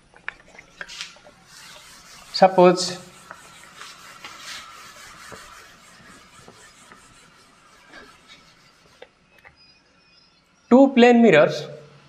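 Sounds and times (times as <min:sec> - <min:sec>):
whiteboard being wiped: 0:00.8 - 0:09.2.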